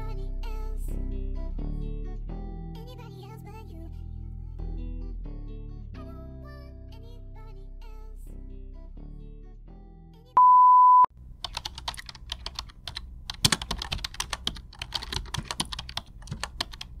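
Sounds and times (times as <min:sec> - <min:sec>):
single-pitched beep: 0:10.4 - 0:11.1
computer keyboard typing: 0:11.4 - 0:17.0.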